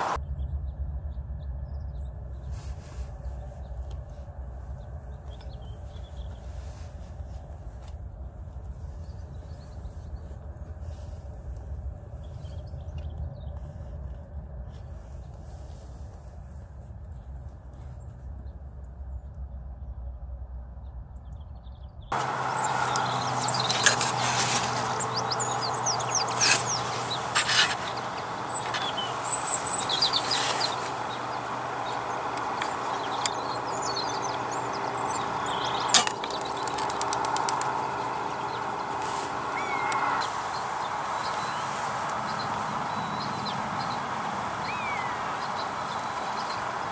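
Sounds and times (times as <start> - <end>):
faint low rumble: 0.2 - 46.6
small birds chirping: 1.6 - 16.0, 21.2 - 46.9
sharp clicks: 22.2 - 40.0.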